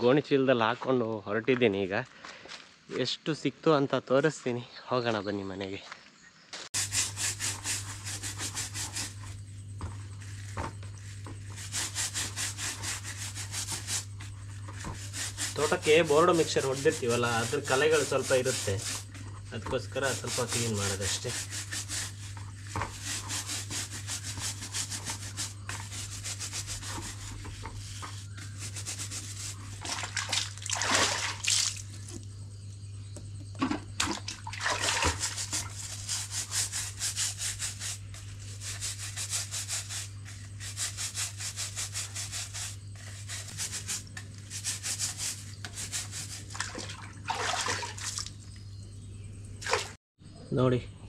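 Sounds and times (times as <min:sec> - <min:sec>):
brush scrubbing fruit rind: 0:06.8 - 0:32.2, 0:34.7 - 0:48.3
water splashing: 0:29.8 - 0:32.1, 0:34.0 - 0:35.4, 0:46.5 - 0:48.3, 0:49.6 - 0:50.0.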